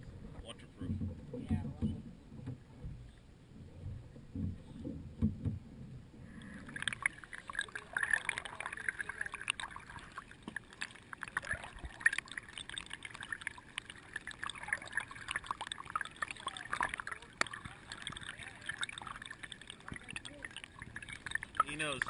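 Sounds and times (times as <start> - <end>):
water splashing and lapping: 0.0 - 22.0
low knocks: 0.1 - 6.2.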